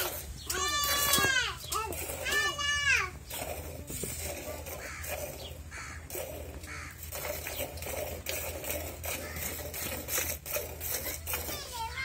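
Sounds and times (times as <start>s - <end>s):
milk squirting into bucket: 0.0s - 12.0s.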